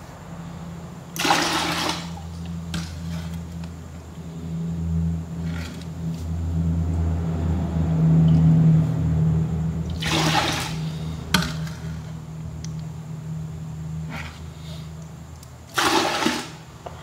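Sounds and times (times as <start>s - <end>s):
steady low hum: 0.0s - 17.0s
poured water splashing: 1.2s - 3.3s, 9.9s - 11.9s, 15.7s - 16.7s
water sloshing in a bowl: 1.2s - 3.6s, 9.9s - 12.0s, 15.7s - 16.7s.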